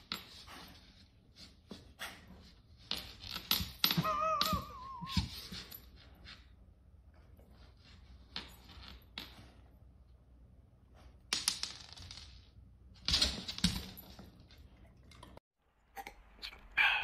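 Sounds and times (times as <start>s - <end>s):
dog whining: 4.0s - 5.6s.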